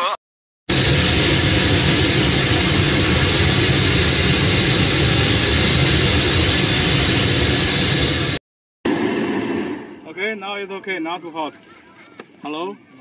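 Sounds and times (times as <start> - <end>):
propane burner flame rushing: 0.7 - 10.2.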